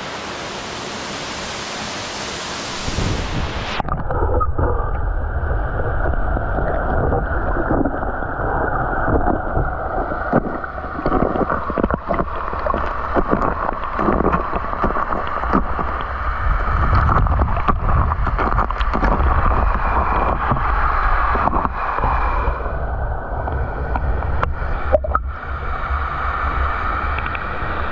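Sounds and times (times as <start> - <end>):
muffled underwater waterfall rumble: 1.3 - 27.9
underwater clicks and knocks: 9.0 - 22.2, 23.9 - 25.3.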